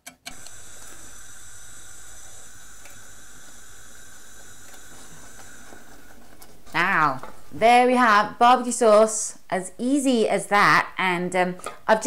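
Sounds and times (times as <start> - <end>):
sauce hissing in a saucepan: 0.4 - 6.8.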